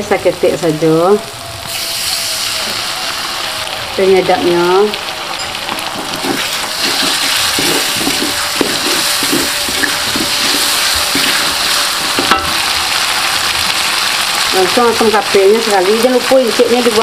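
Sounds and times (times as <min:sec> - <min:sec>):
paste sizzling in a wok: 0:00.2 - 0:17.0
wooden spatula scraping: 0:05.7 - 0:12.4.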